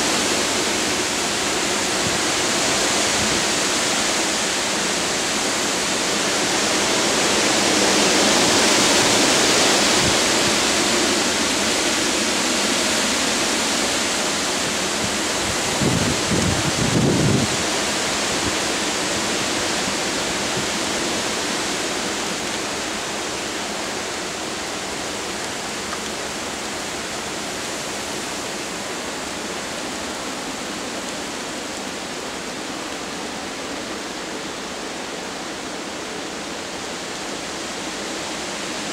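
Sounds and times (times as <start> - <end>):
storm wind through trees: 0.0 - 38.9
wind gust buffeting microphone: 14.7 - 18.8.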